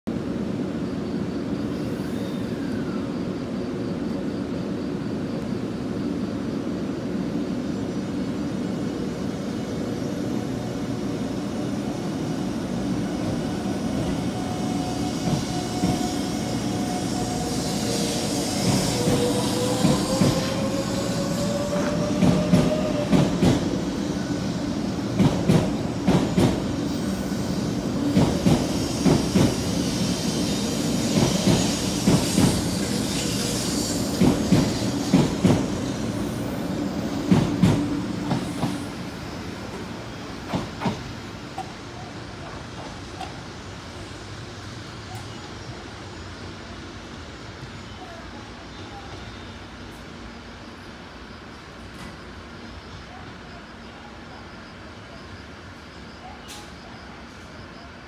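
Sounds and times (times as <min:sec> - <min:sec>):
train hum: 0:00.1 - 0:58.0
train whine rising in pitch: 0:08.9 - 0:25.1, 0:25.8 - 0:40.4.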